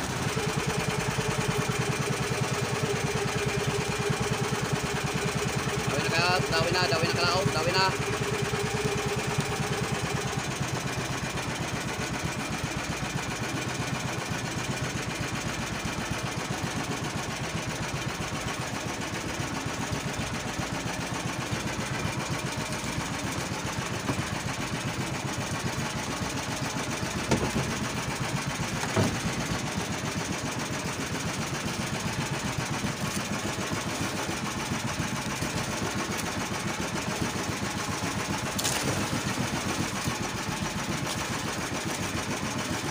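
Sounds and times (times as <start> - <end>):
boat engine running: 0.0 - 42.9
short sharp knocks: 27.2 - 27.8, 28.8 - 29.3.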